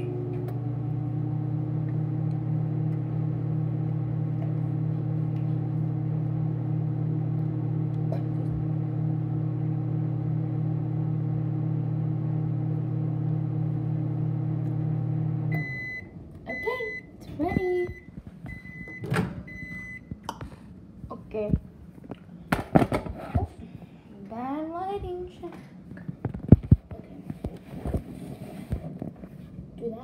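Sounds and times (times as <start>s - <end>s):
microwave oven humming: 0.0s - 21.5s.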